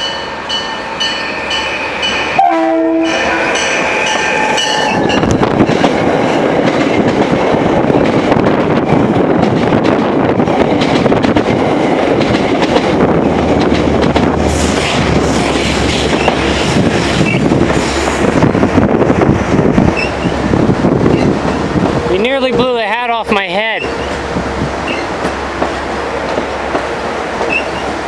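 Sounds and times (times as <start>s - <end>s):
train coaches passing at speed: 0.0s - 28.0s
wheels clickety-clack: 9.3s - 17.4s.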